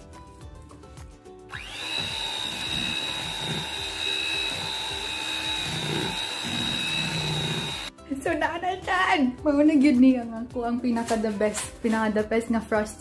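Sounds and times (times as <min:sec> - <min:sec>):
electric hand mixer whining: 0:01.5 - 0:07.9.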